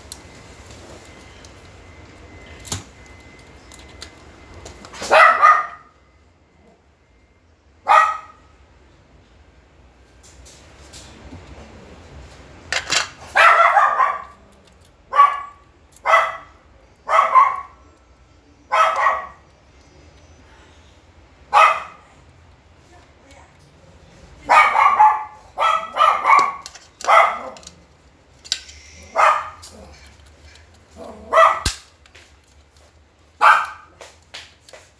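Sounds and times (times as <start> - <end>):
dog barking: 5.0 - 5.9, 7.8 - 8.5, 13.3 - 14.4, 15.1 - 17.8, 18.7 - 19.5, 21.5 - 22.2, 24.4 - 27.6, 29.1 - 29.7, 31.0 - 31.7, 33.4 - 34.0.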